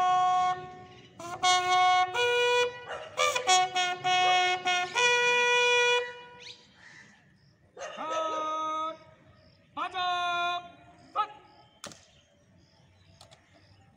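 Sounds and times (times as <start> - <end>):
bugle playing slow call: 0.0 - 6.8.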